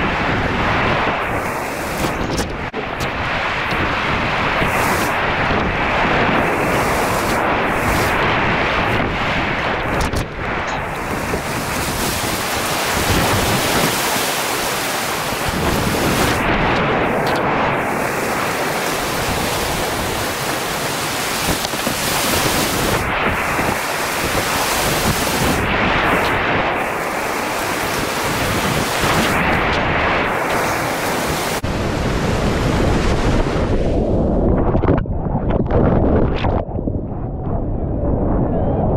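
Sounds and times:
water splashing: 0.6 - 31.7
whitewater rapids rushing: 10.6 - 31.6.

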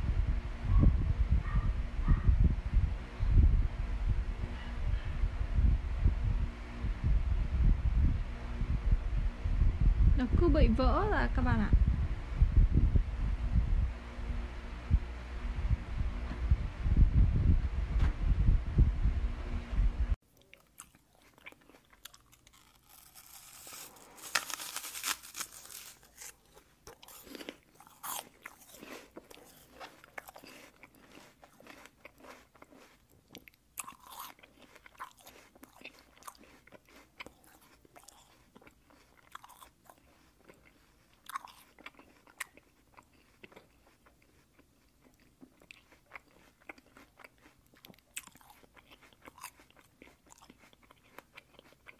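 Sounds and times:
loud low rumble: 0.0 - 20.2.

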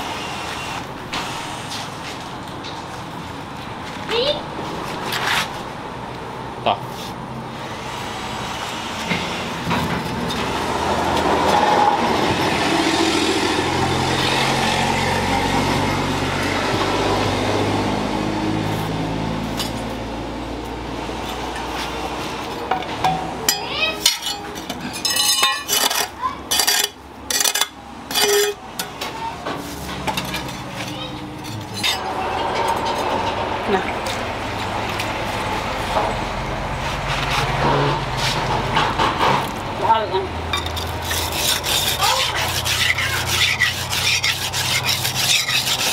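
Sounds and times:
metallic clinks and knocks: 22.7 - 28.9.

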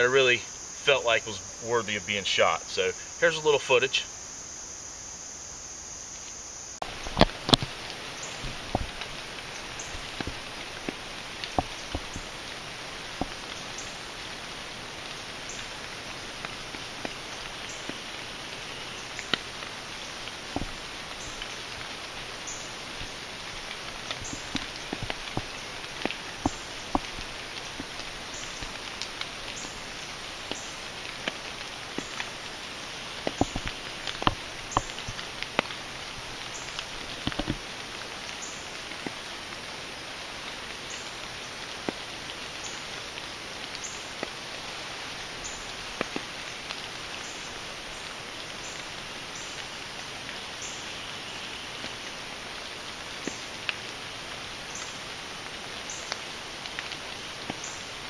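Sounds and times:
rain falling on woodland: 0.0 - 58.0
sharp drip ticks: 6.8 - 14.4, 15.0 - 32.4, 33.1 - 35.8, 36.4 - 39.2, 45.2 - 49.7.

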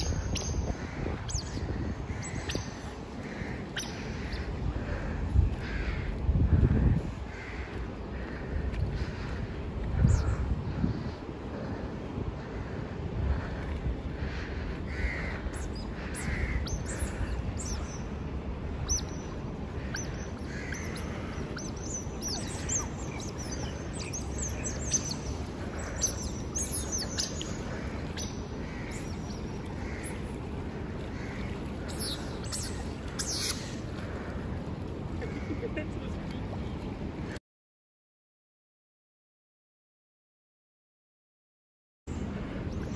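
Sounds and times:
steady low rumble: 0.0 - 37.4
otters squeaking and chirping: 19.9 - 27.4.

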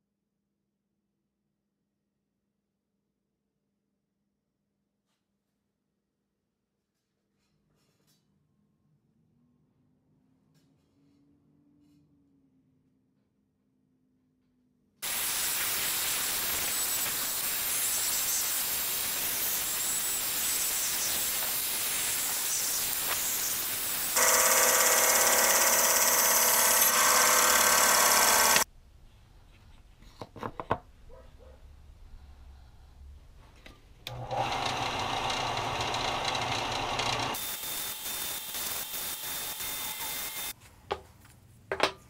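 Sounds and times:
bandsaw cutting wood: 15.0 - 28.6, 34.1 - 40.5
steady hissing noise: 15.1 - 24.2.

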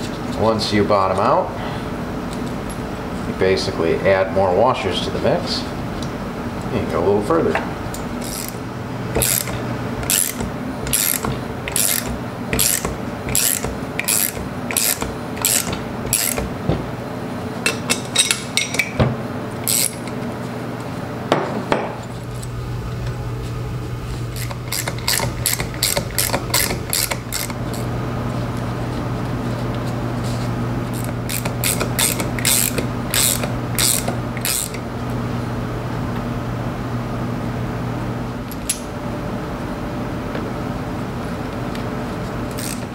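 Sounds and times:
ratchet wrench clicking: 8.2 - 8.6, 9.2 - 16.4, 19.7 - 20.0, 24.4 - 27.8, 31.0 - 34.8, 42.6 - 42.8.

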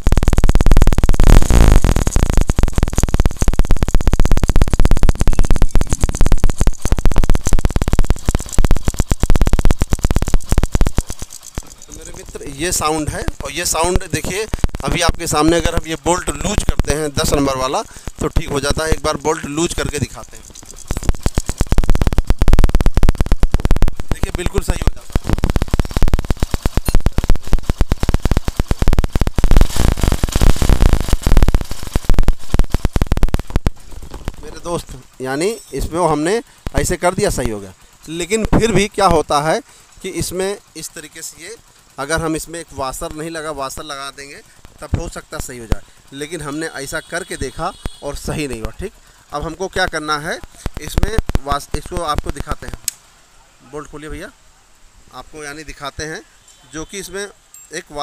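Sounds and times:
motorcycle engine metallic clatter: 2.4 - 16.7, 17.3 - 29.4, 32.4 - 52.2.

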